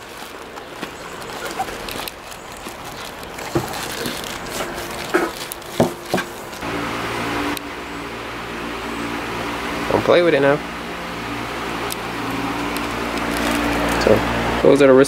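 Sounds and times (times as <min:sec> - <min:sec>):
plastic bags crinkling: 0:00.0 - 0:06.6, 0:11.9 - 0:14.4
steady hum: 0:00.0 - 0:15.0.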